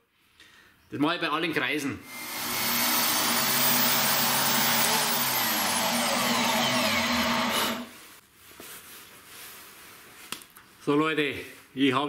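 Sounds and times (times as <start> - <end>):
electric drill boring plywood: 2.1 - 7.9.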